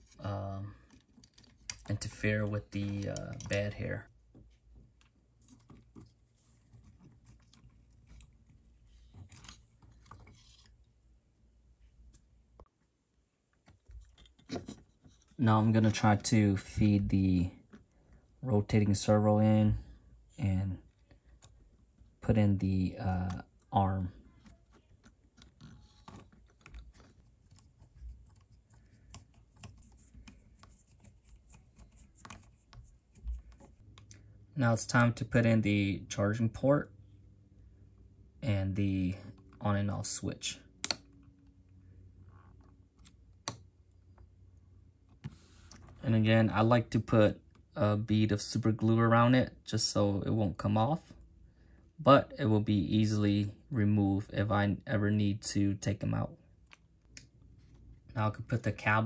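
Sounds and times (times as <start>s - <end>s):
plastic parts clicking and rustling: 0.8s - 2.2s.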